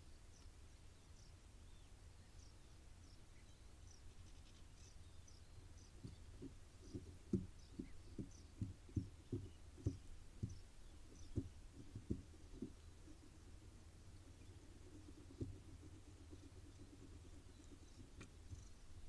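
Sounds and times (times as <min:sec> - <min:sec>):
low steady hum: 0:00.0 - 0:19.0
dull low thumps in wooden nest box: 0:05.8 - 0:19.0.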